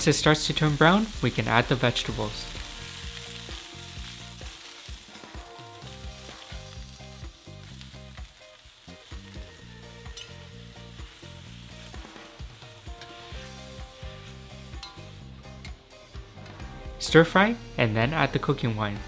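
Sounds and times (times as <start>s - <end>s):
vegetables sizzling in hot oil: 0.0s - 16.7s
metal spatula scraping wok: 10.0s - 10.4s, 11.9s - 15.8s.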